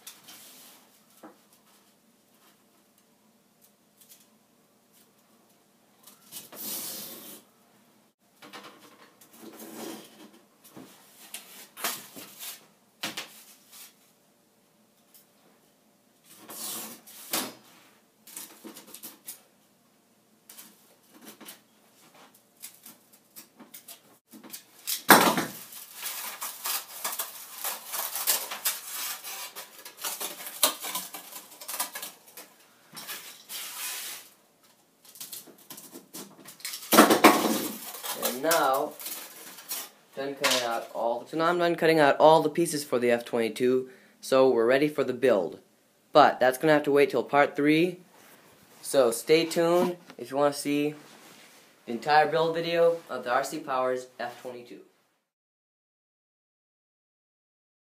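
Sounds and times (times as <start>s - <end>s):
knife scraping foam board: 25.9s - 31.2s, 33.2s - 34.4s.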